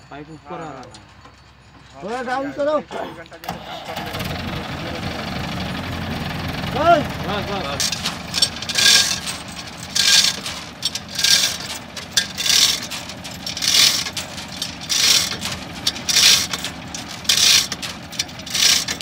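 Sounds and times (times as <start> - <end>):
low engine hum: 3.9 - 19.0
rhythmic scraping strokes: 7.2 - 19.0.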